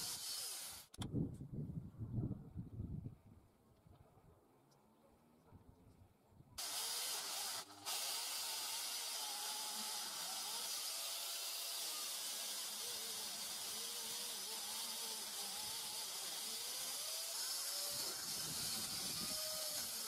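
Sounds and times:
electric chainsaw whirring: 0:00.0 - 0:01.0, 0:06.6 - 0:20.0.

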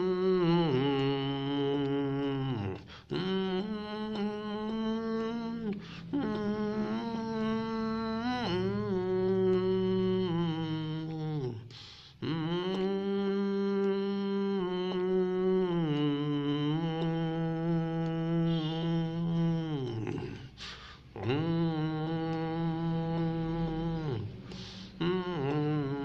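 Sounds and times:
man humming a melody: 0:00.0 - 0:26.0
breath intake: 0:05.8 - 0:06.1, 0:11.6 - 0:12.2, 0:20.1 - 0:21.2, 0:24.3 - 0:25.0.

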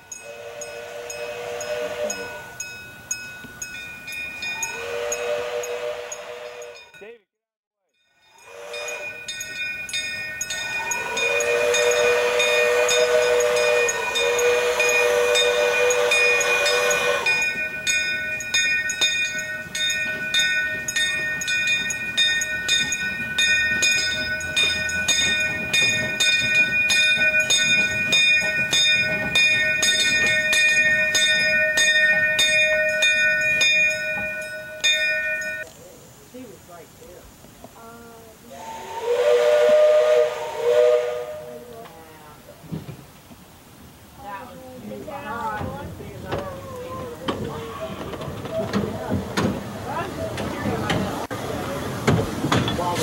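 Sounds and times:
steam hissing: 0:08.3 - 0:43.1, 0:45.5 - 0:53.0
train wheels clicking: 0:08.4 - 0:35.8, 0:45.5 - 0:53.0.

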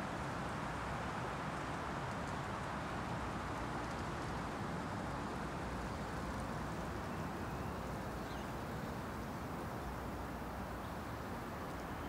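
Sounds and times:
rushing forest ambience: 0:00.0 - 0:12.0
faint high chirp: 0:11.6 - 0:12.0.

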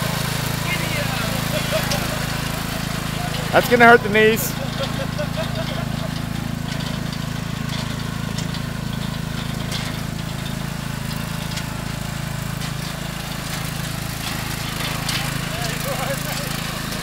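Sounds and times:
riding lawn mower engine running: 0:00.0 - 0:17.0.

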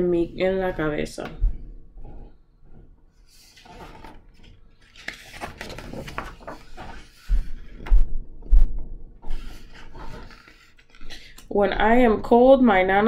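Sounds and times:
paper rustling: 0:03.2 - 0:08.0, 0:09.2 - 0:11.3.

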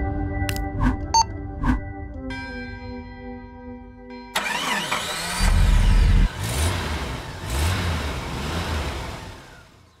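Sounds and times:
engine revs: 0:04.4 - 0:10.0.

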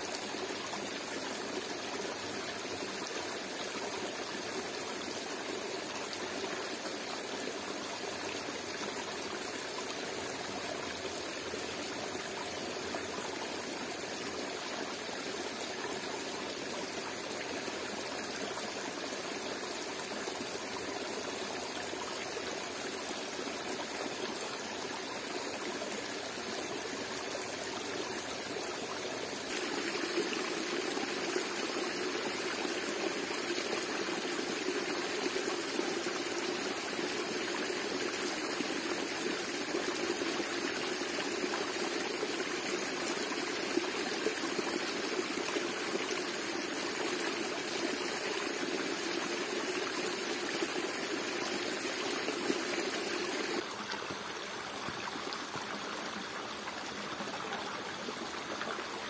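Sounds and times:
waterfall and stream rushing: 0:19.1 - 0:59.0.

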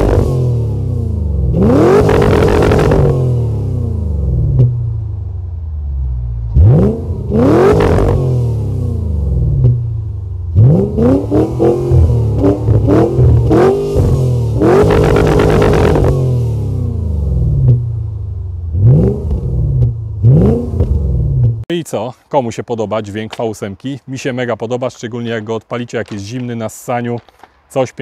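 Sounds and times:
car engine revving: 0:00.0 - 0:21.7.

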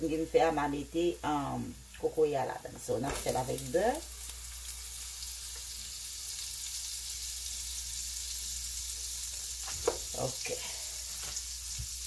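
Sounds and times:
butter and garlic sizzling: 0:00.0 - 0:12.0.

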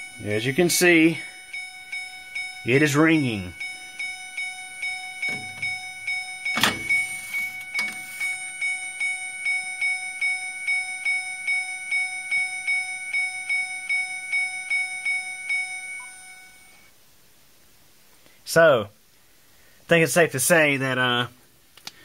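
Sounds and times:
phone ringtone melody: 0:00.0 - 0:16.7.

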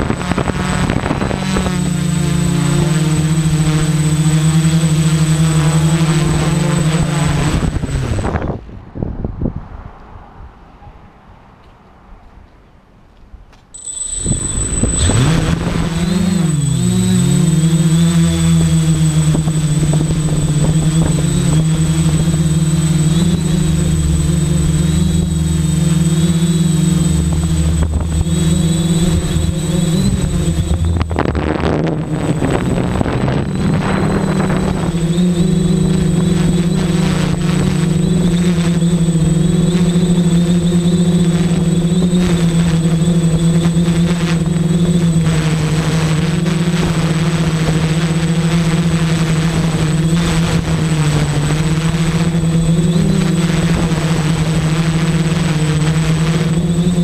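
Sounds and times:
faint high whine: 0:00.0 - 0:08.4, 0:13.7 - 0:57.0
quadcopter propellers buzzing: 0:00.0 - 0:08.6, 0:13.8 - 0:57.0.

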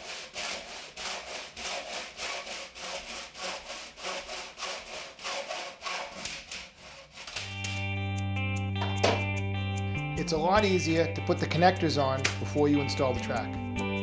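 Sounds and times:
hacksaw cutting metal: 0:00.0 - 0:07.8
guitar chord background music: 0:07.4 - 0:14.0.

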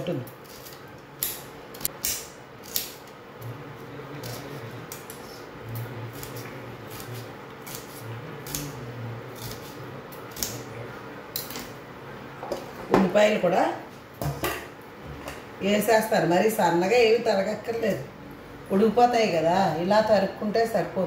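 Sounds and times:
knife cutting onions: 0:04.2 - 0:10.7.

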